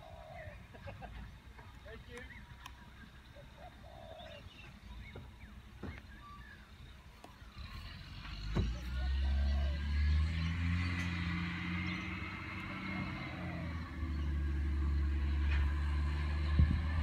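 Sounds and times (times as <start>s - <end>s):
diesel engine rumbling: 0.0s - 17.0s.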